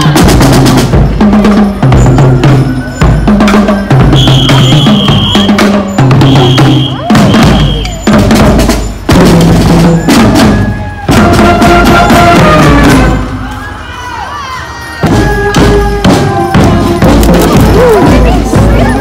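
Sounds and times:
bass drum beats: 0:00.0 - 0:13.2, 0:15.0 - 0:19.0
marching band playing: 0:00.0 - 0:19.0
brass holding notes: 0:02.5 - 0:08.0, 0:09.1 - 0:13.4.

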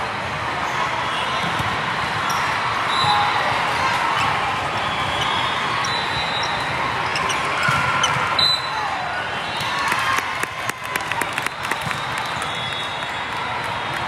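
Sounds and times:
crowd chatter: 0:00.0 - 0:14.0
volleyballs hit and bouncing: 0:09.5 - 0:12.7.

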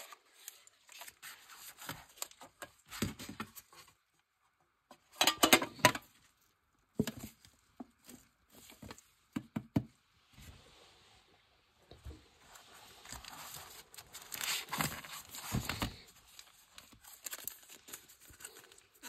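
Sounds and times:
cards rustling: 0:13.0 - 0:19.0.

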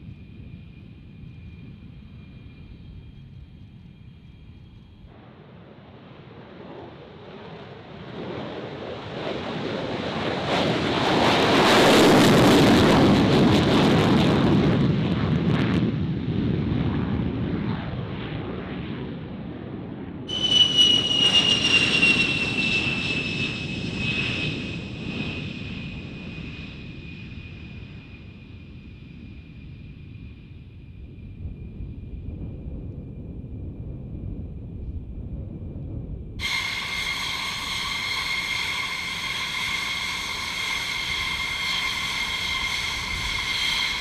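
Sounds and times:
jet engine taking off: 0:00.0 - 0:34.6, 0:36.1 - 0:44.0
high turbofan whine: 0:20.3 - 0:32.0, 0:36.4 - 0:44.0.

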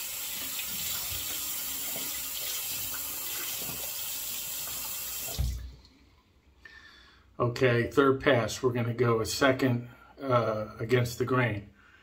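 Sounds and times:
water splashing into sink: 0:00.0 - 0:05.9.

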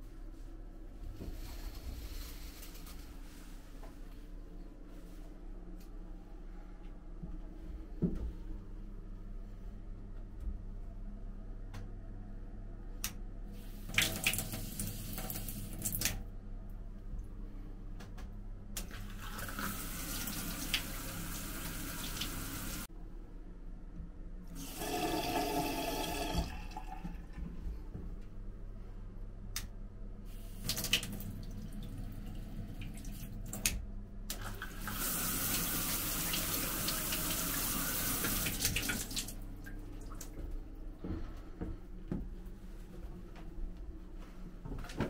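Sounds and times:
steady low hum: 0:00.0 - 0:45.0
water running from tap: 0:13.8 - 0:16.2, 0:18.9 - 0:22.9, 0:24.6 - 0:27.3, 0:30.5 - 0:33.7, 0:34.4 - 0:39.4.

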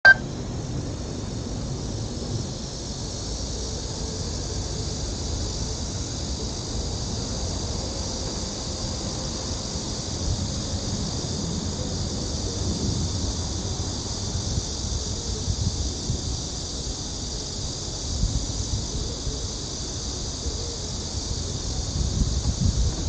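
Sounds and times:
short sharp beep: 0:00.0 - 0:00.2
high hiss: 0:00.0 - 0:23.0.

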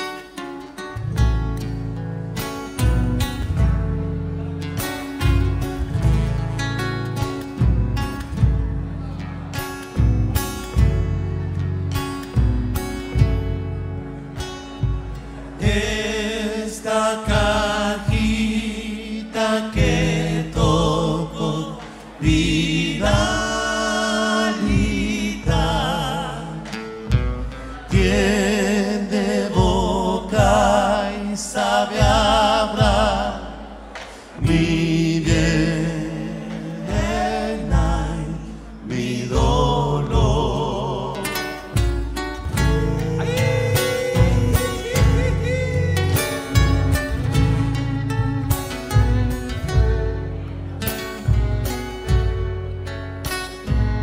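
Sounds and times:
acoustic guitar: 0:00.0 - 0:54.0
voices singing in harmony: 0:15.2 - 0:41.8, 0:42.4 - 0:48.9
drum beat: 0:19.8 - 0:26.2, 0:29.5 - 0:35.8, 0:36.4 - 0:38.3, 0:41.8 - 0:50.3.

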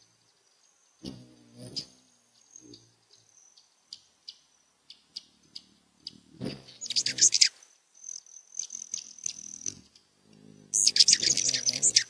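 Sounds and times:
hummingbird chips: 0:05.2 - 0:12.0.

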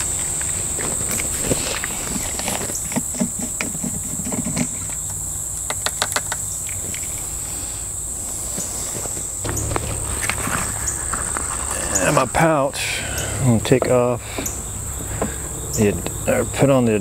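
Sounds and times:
high-pitched insect drone: 0:09.4 - 0:17.0.

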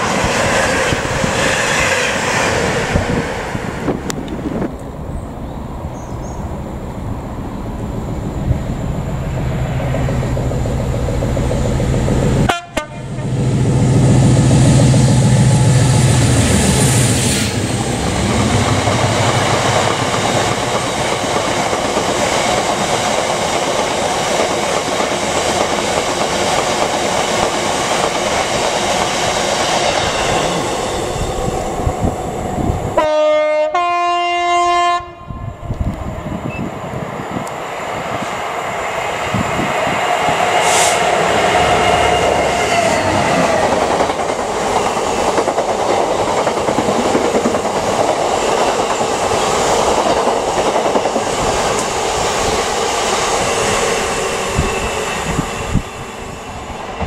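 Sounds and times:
diesel locomotive passing: 0:00.0 - 0:57.0
two-tone locomotive horn: 0:12.4 - 0:13.4, 0:33.0 - 0:35.7, 0:40.6 - 0:41.0.

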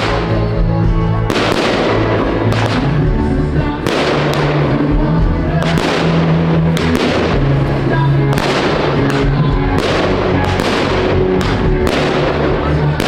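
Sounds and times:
music with long held notes: 0:00.0 - 0:13.0
firework shells bursting: 0:01.3 - 0:03.0.

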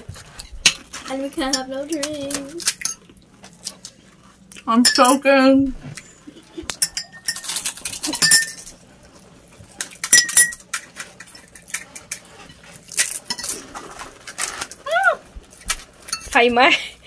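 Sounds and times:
spoons clinking against glass and china: 0:06.8 - 0:08.7, 0:10.0 - 0:10.7
crisp shells cracking: 0:07.4 - 0:08.2, 0:12.8 - 0:16.1.

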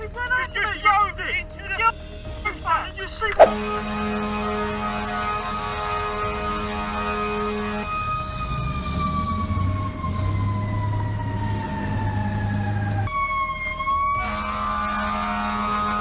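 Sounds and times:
emergency vehicle siren wailing: 0:04.7 - 0:16.0.

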